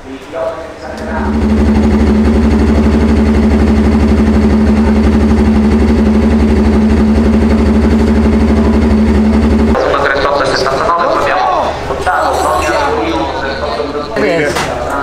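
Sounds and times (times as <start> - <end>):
motorcycle engine idling: 1.0 - 9.8.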